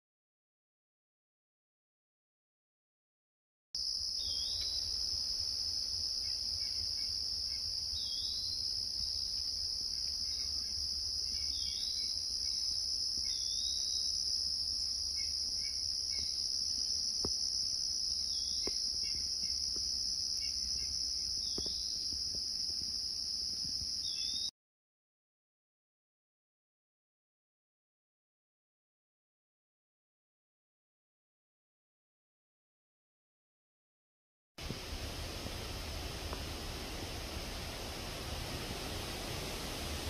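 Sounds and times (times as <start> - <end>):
insects trilling: 3.8 - 24.5.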